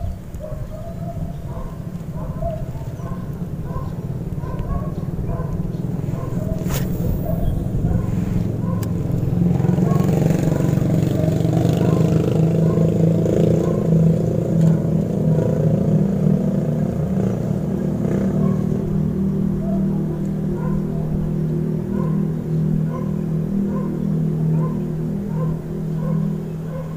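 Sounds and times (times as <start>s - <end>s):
vehicle engine running: 3.2s - 26.9s.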